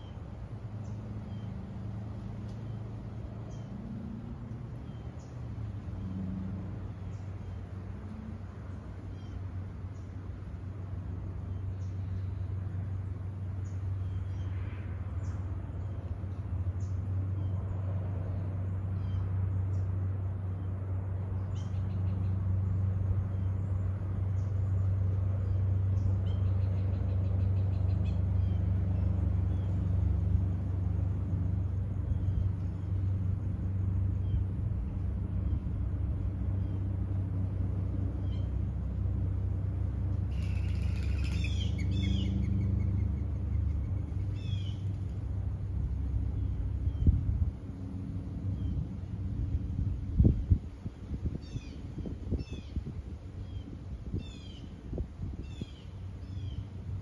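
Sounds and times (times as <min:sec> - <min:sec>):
low engine hum: 0:00.0 - 0:57.0
bird trill: 0:40.3 - 0:45.0.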